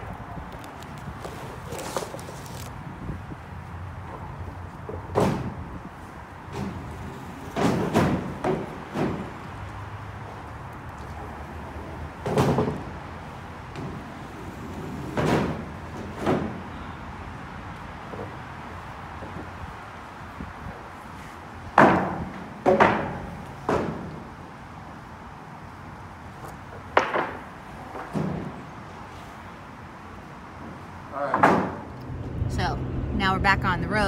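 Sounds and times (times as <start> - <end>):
wooden boards knocking and scraping: 31.3 - 31.9.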